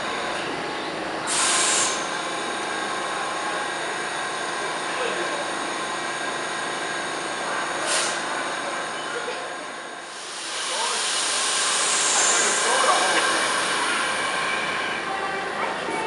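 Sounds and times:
subway car equipment humming: 0.0s - 16.0s
air hiss burst: 1.3s - 2.0s
faint murmur of voices: 1.8s - 6.4s, 7.0s - 16.0s.

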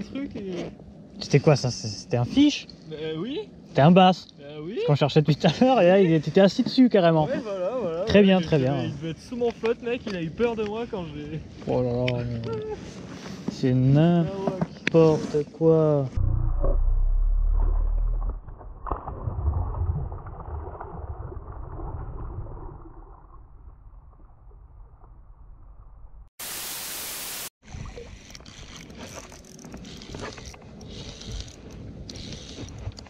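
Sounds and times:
wind rumbling on microphone: 27.6s - 33.0s.

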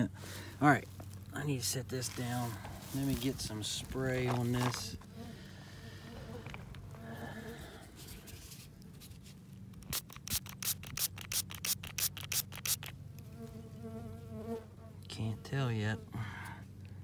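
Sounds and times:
bee buzzing: 4.4s - 7.9s, 9.8s - 16.1s
spray bottle squirting: 9.8s - 13.0s.

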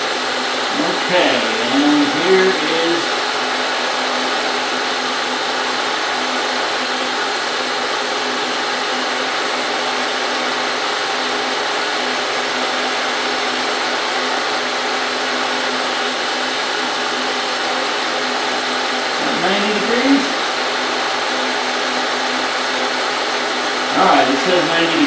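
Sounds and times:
milling machine spindle humming: 0.3s - 7.7s.

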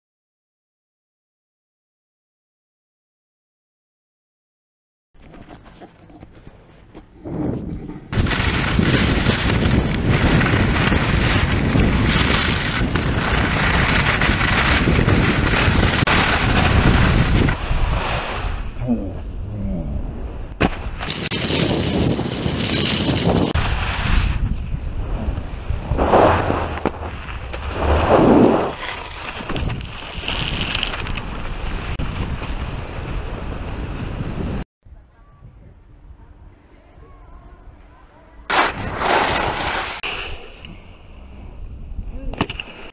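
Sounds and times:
skis running over snow: 5.4s - 17.6s, 21.1s - 23.6s, 38.5s - 40.0s
wind buffeting microphone: 6.9s - 17.9s, 21.1s - 26.6s.

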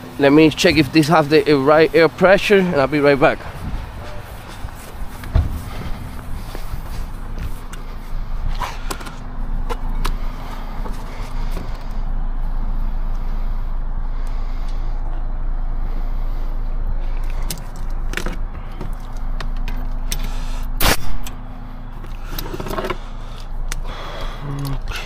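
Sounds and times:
vehicle engine idling: 0.0s - 25.0s
clicks and handling noises: 22.0s - 23.8s.

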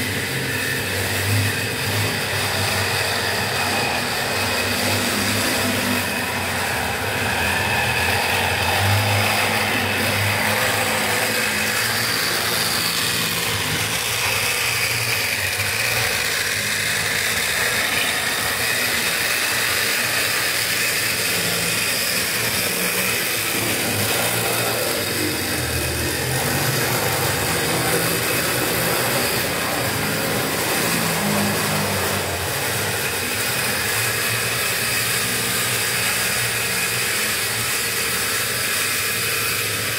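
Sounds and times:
model locomotive whirring: 0.0s - 39.9s.

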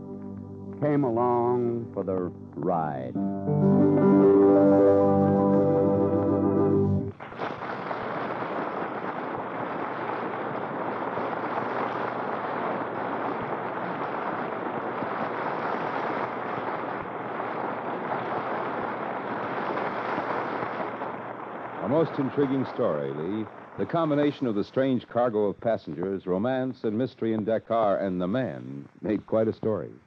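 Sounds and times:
organ music sting: 0.0s - 7.1s
steady rushing hiss: 0.0s - 30.0s.

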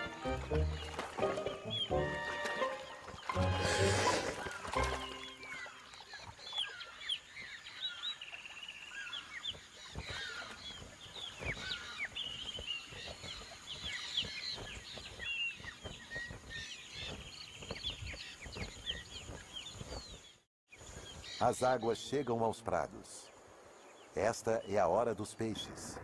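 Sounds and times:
birds chirping and whistling: 0.0s - 22.3s
wetland ambience hiss: 20.7s - 26.0s.

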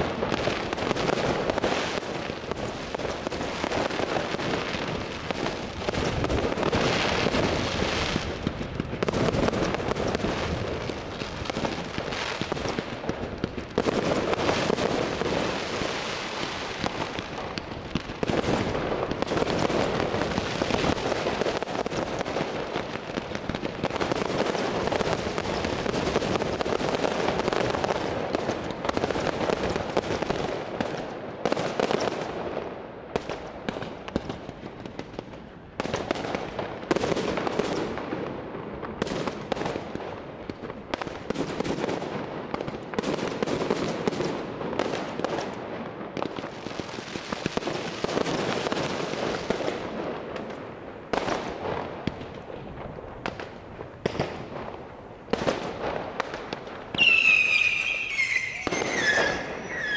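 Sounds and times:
fireworks crackling: 0.0s - 59.9s
firework shells bursting: 56.6s - 59.9s.

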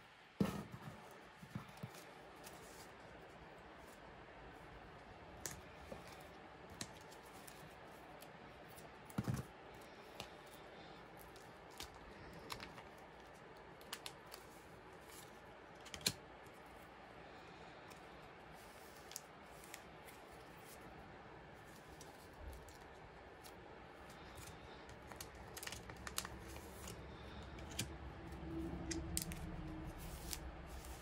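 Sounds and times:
plastic pocket pages clicking: 24.4s - 27.9s.

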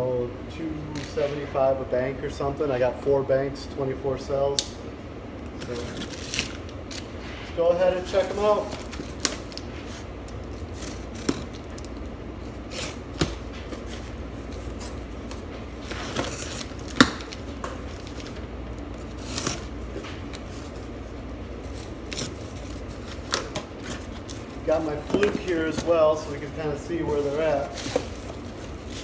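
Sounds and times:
low steady hum: 0.0s - 29.0s.

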